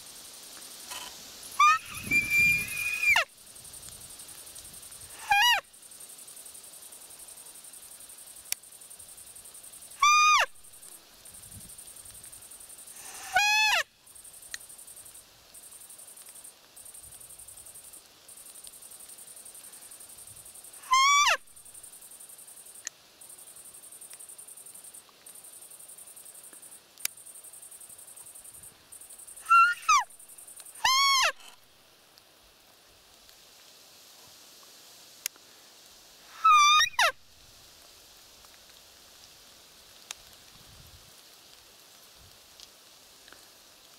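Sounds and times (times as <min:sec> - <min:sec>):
high-pitched deer call squeaks: 0:00.9 - 0:03.3, 0:05.1 - 0:05.6, 0:10.0 - 0:10.6, 0:13.0 - 0:13.9, 0:20.8 - 0:21.5, 0:29.4 - 0:30.2, 0:30.8 - 0:31.6, 0:36.3 - 0:37.2.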